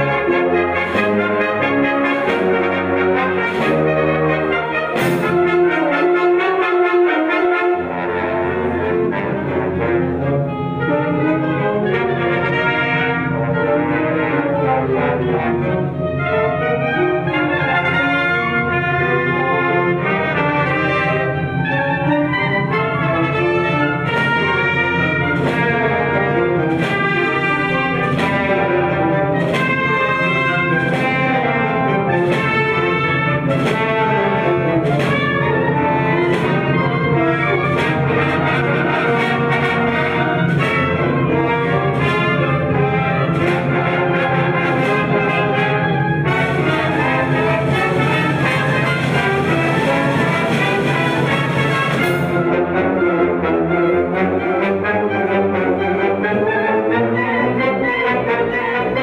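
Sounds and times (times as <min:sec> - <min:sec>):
orchestral music with brass: 0:00.0 - 0:59.0.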